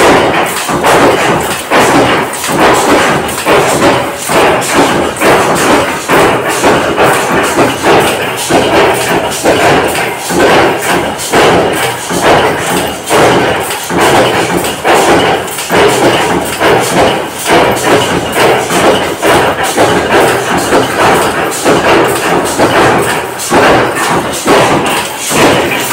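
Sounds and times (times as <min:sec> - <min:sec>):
constant machine noise: 0:00.0 - 0:25.9
power press heavy thumps: 0:00.0 - 0:25.9.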